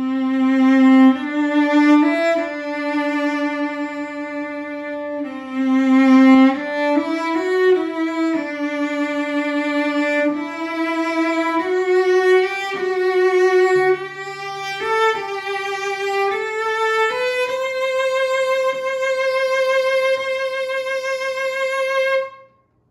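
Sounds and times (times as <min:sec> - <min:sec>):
bowed cello melody: 0:00.0 - 0:22.6.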